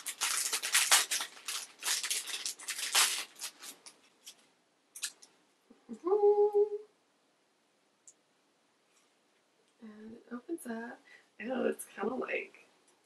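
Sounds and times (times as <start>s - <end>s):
plastic wrapper crinkling and tearing: 0.0s - 5.3s
closed-mouth hum: 5.7s - 7.0s.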